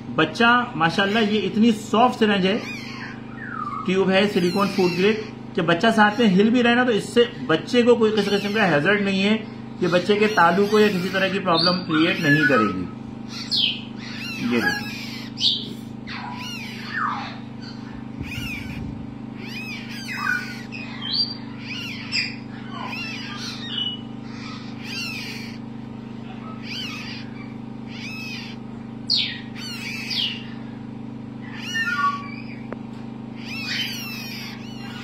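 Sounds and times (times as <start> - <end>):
parrot chick begging calls: 0.8 - 6.6, 8.0 - 9.0, 9.8 - 30.8, 31.4 - 32.7, 33.3 - 35.0.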